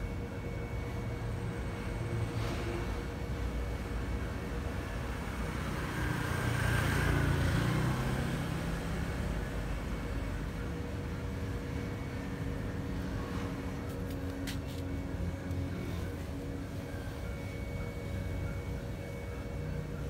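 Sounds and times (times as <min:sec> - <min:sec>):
low engine rumble: 0:06.4 - 0:20.0.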